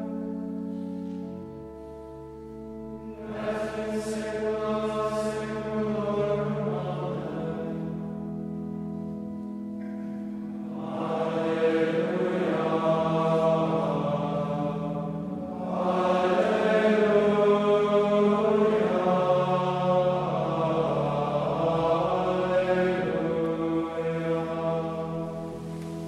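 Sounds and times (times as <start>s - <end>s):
male choir chanting in unison: 3.1s - 8.1s, 10.7s - 26.0s.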